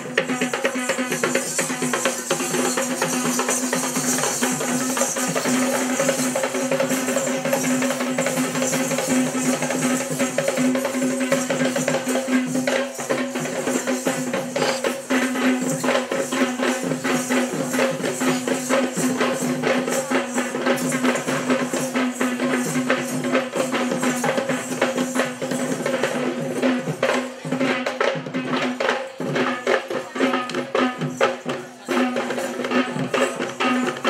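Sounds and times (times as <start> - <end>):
jingling: 0.0 - 26.6
fast drumming: 0.0 - 34.0.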